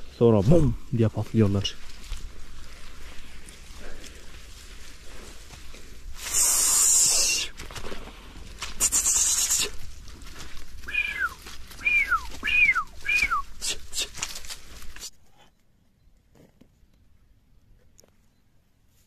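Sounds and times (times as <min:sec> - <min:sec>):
loud bursts of hiss: 0:06.2 - 0:07.5
high animal calls sliding down: 0:06.2 - 0:07.6, 0:08.7 - 0:09.8, 0:10.8 - 0:15.1.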